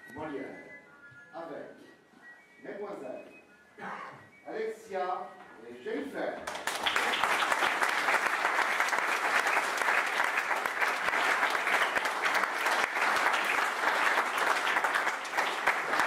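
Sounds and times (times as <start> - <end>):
audience applauding: 6.5 - 16.0.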